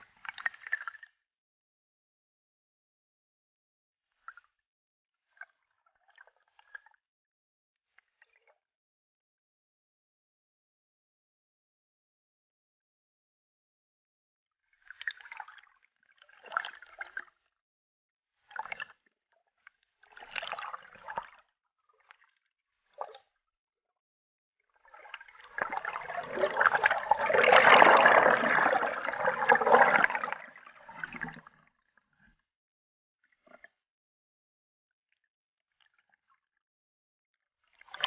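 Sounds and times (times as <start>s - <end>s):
water gurgling and sloshing: 0.1s - 1.2s, 14.6s - 17.5s, 18.4s - 23.4s, 24.7s - 32.5s, 33.2s - 33.8s.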